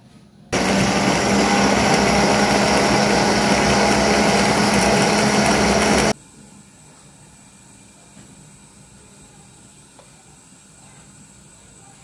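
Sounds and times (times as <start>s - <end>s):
blender motor whining: 0.6s - 6.2s.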